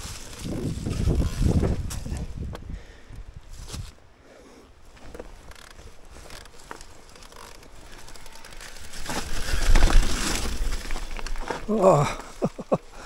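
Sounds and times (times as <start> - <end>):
wind: 0.0 - 13.0
tyre noise: 4.9 - 13.0.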